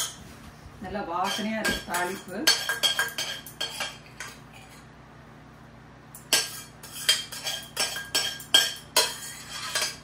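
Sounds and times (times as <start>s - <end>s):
spoon scraping steel vessel: 1.2s - 4.8s, 6.3s - 10.0s.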